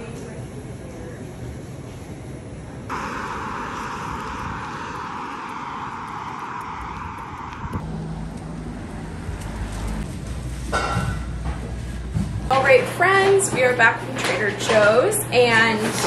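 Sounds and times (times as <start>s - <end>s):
low engine drone: 2.9s - 10.7s
passing vehicles rushing: 2.9s - 11.5s.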